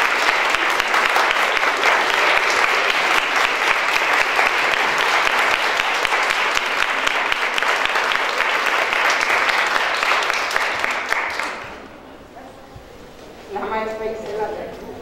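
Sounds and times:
audience clapping: 0.0 - 12.0.

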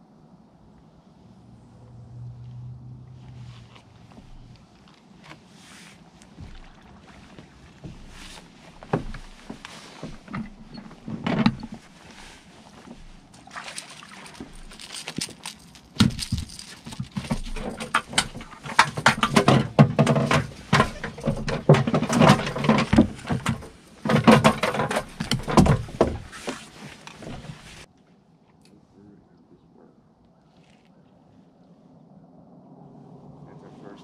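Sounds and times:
fishing handling clicks and knocks: 6.2 - 27.9.

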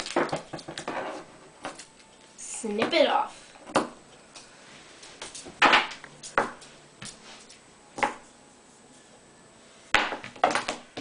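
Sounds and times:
duct tape crinkling: 0.0 - 2.3.

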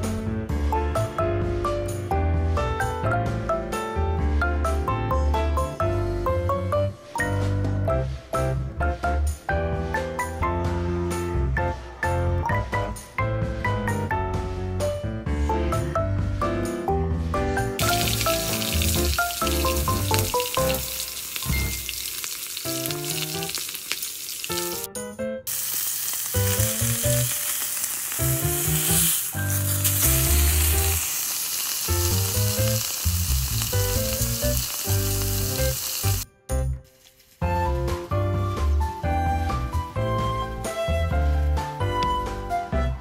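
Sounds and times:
patty sizzling in a skillet: 17.8 - 24.9, 25.5 - 36.3, 36.9 - 37.5.

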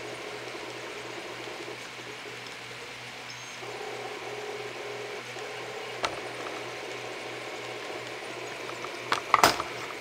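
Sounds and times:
printer stepper motors humming: 0.0 - 10.0
sharp clicks and knocks: 5.3 - 6.6, 8.0 - 10.0.

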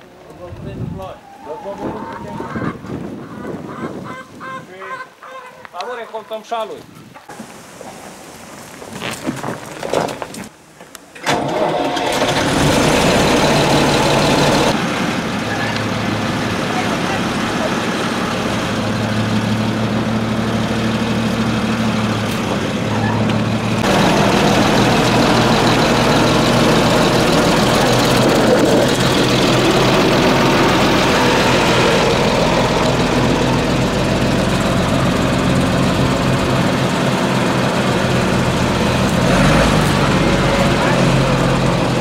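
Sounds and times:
tractor diesel engine running: 11.3 - 42.0.

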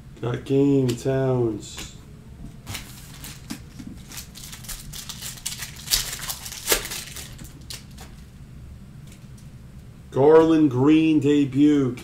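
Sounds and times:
foil wrapper crinkling: 2.7 - 8.3.

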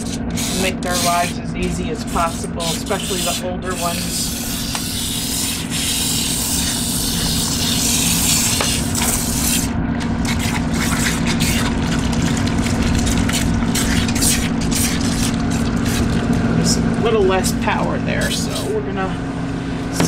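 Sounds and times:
pump hum: 0.0 - 20.0
water spraying from nozzle: 5.0 - 9.7.

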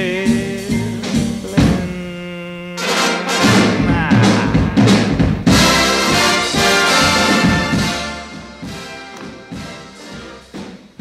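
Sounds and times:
orchestral music with brass: 2.8 - 4.1, 4.9 - 10.7.

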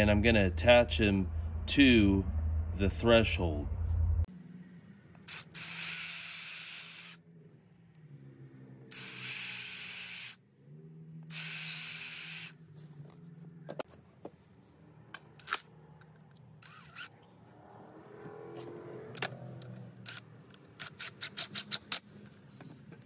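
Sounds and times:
cordless drill whining: 5.3 - 7.2, 8.9 - 10.4, 11.3 - 12.6.

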